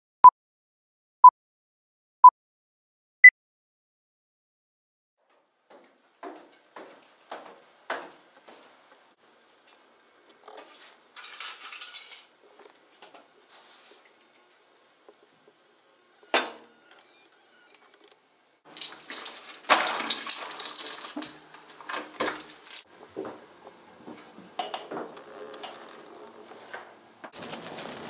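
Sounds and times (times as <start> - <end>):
keys clinking: 18.7 - 21.5, 22.2 - 22.9.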